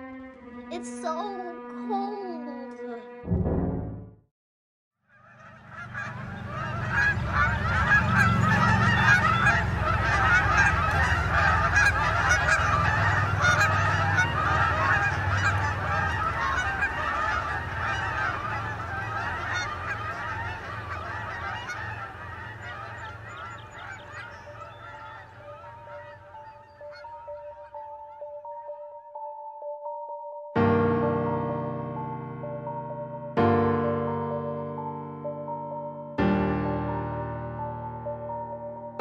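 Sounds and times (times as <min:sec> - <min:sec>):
geese honking: 0:05.1 - 0:28.9.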